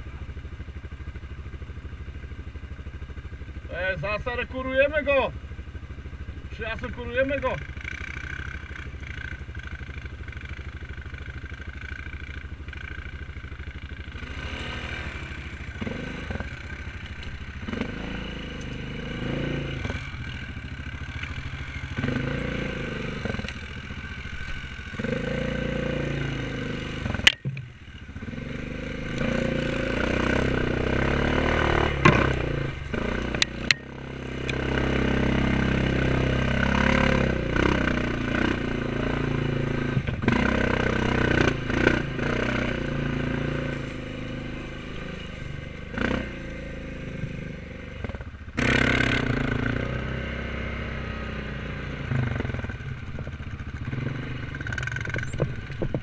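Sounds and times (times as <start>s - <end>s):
quad bike engine revving: 0.9s - 56.0s
sharp knocks: 32.0s - 32.4s.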